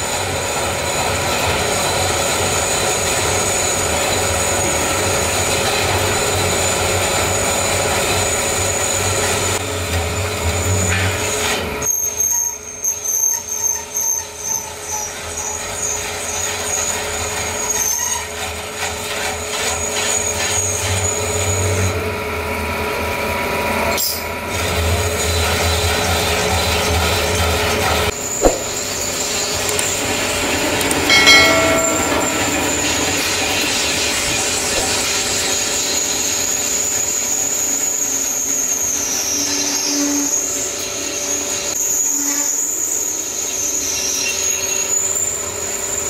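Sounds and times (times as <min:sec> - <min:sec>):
thin high whine: 0:28.6 - 0:36.1.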